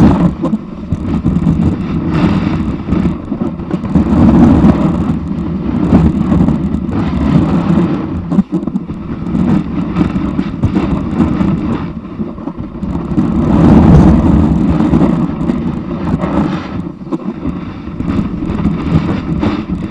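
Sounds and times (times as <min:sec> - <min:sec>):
snowboard scraping over snow: 0:00.0 - 0:19.9
wind on microphone: 0:00.0 - 0:19.9.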